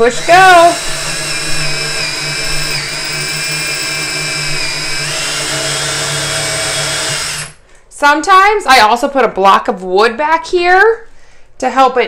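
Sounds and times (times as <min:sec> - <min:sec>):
cordless drill boring into wood: 0:00.0 - 0:07.6.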